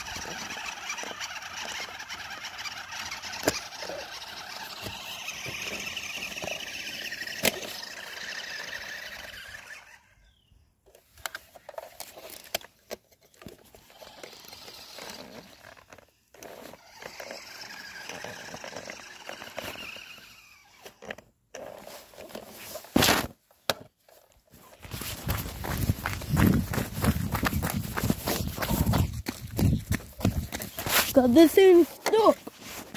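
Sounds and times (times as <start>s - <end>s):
electric motor whining: 0.0s - 10.1s, 13.8s - 21.2s.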